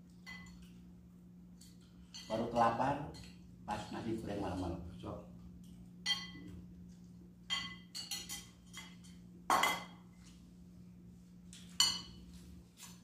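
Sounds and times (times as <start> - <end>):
spoons clinking on plates: 0.1 - 0.8, 1.6 - 3.5, 6.0 - 6.6, 7.4 - 10.4, 11.5 - 13.0.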